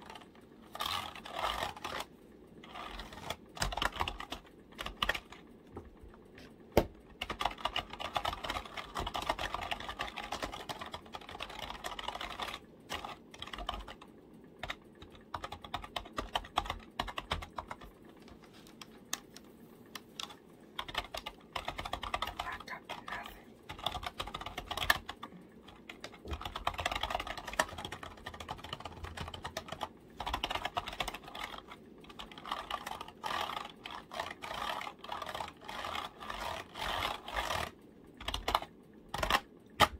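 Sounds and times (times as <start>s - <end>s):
keyboard keys clicking: 3.0s - 5.4s, 6.8s - 18.0s, 18.7s - 37.6s.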